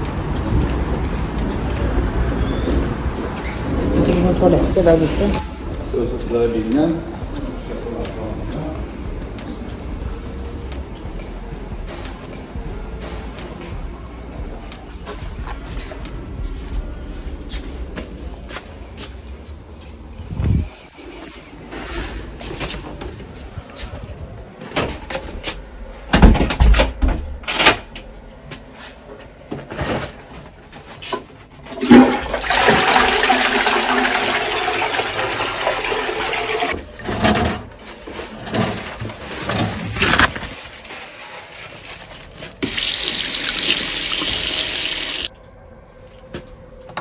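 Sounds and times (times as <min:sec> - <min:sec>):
toilet flushing: 0:31.7 - 0:37.6, 0:42.6 - 0:45.3.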